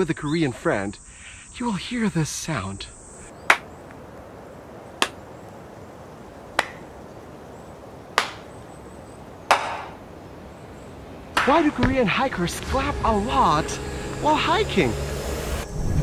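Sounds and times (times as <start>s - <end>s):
hand claps: 6.6s - 6.8s, 8.2s - 8.4s, 9.5s - 10.0s.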